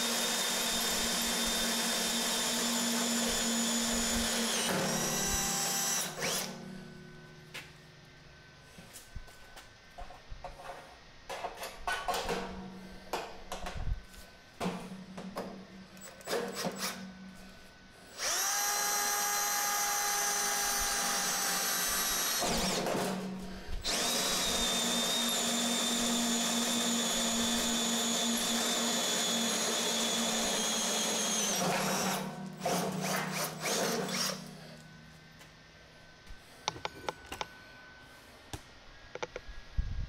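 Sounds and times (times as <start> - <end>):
hole saw cutting metal whine: 0.0 - 6.7, 18.1 - 34.8.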